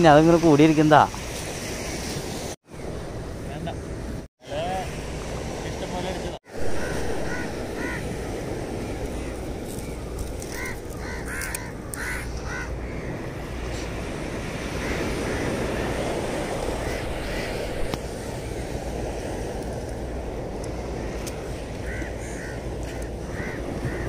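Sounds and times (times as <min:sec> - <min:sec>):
surf: 0:00.0 - 0:11.4
wind: 0:00.0 - 0:24.0
crows cawing: 0:06.6 - 0:13.2, 0:14.7 - 0:16.0, 0:16.8 - 0:17.8, 0:21.8 - 0:24.0.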